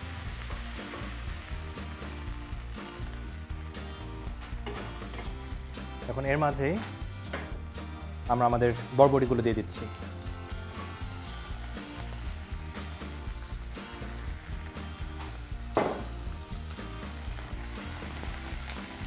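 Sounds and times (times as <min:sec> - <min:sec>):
beans sizzling in oil: 0:00.0 - 0:19.0
light background music: 0:00.0 - 0:19.0.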